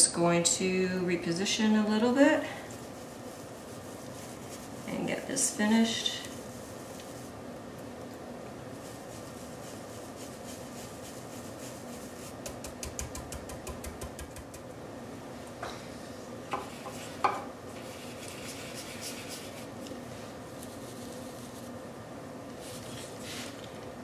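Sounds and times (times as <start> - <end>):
stencil brush tapping: 12.2 - 14.7.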